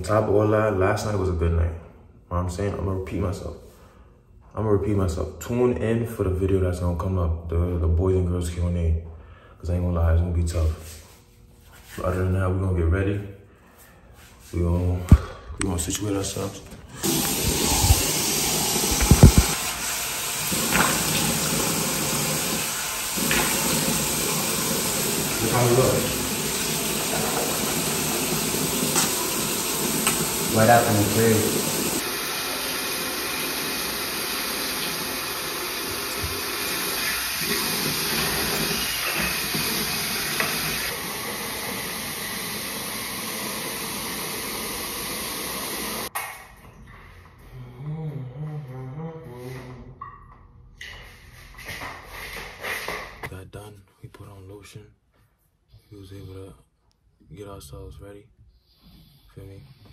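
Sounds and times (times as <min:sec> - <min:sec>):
tap running into sink: 0:17.0 - 0:32.0
water splashing on face: 0:17.0 - 0:32.0.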